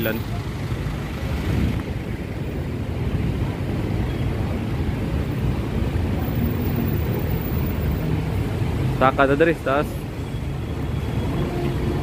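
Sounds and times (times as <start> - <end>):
street traffic: 0.0 - 12.0
wind rumble on microphone: 1.3 - 7.5.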